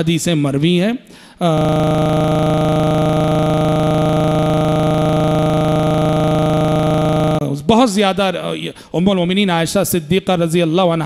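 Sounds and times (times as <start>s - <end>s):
electronic buzzing tone: 1.4s - 7.5s.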